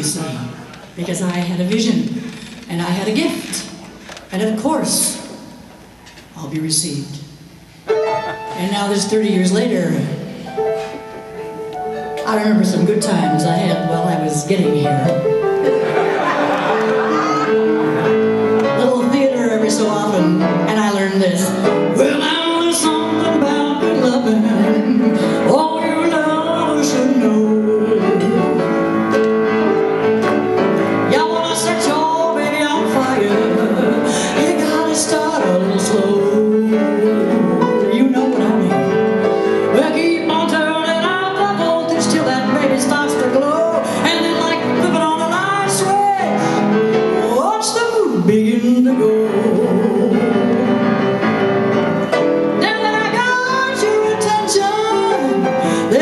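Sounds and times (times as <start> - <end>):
piano accompaniment: 7.3 - 56.0
woman singing: 12.2 - 15.2, 18.7 - 28.9, 31.0 - 51.1, 52.5 - 56.0.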